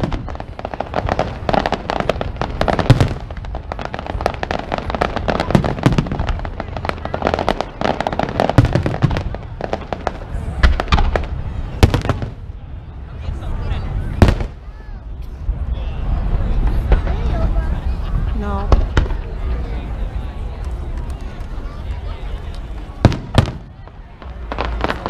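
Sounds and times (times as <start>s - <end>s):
heavy firework booms: 0.0s - 12.5s, 14.1s - 14.6s, 23.0s - 25.0s.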